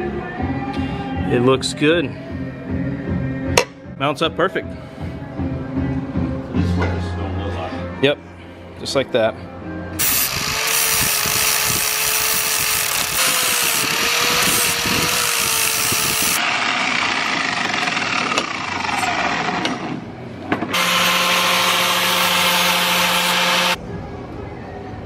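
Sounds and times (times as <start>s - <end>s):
angle grinder grinding steel: 10.0s - 19.8s, 20.7s - 23.8s.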